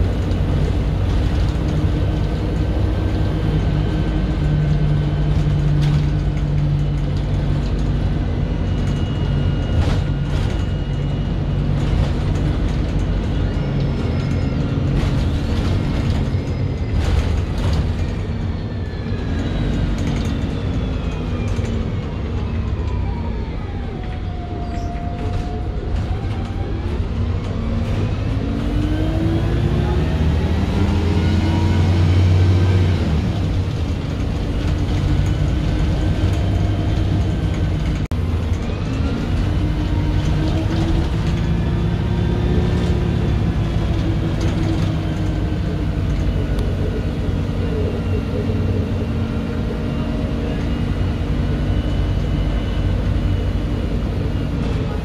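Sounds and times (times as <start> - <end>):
transmission whine: 0.0 - 23.0
bus diesel engine: 0.0 - 55.0.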